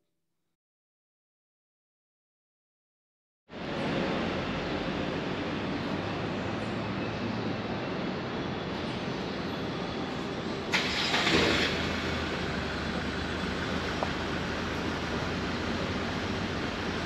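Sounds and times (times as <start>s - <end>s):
city street traffic: 3.5s - 17.0s.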